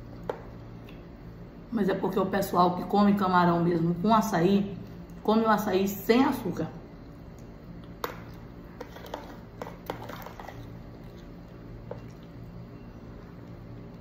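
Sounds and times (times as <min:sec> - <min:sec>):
faint low hum: 0:00.0 - 0:14.0
spoon scraping plastic tub: 0:08.7 - 0:11.3.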